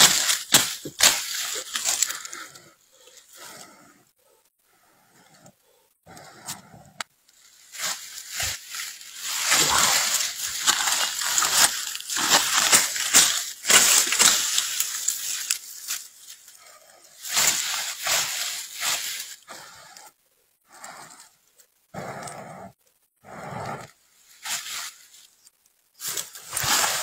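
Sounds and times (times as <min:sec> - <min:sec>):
scuffling in dry leaf litter: 0:07.5 - 0:16.5, 0:17.2 - 0:19.4, 0:26.0 - 0:27.0.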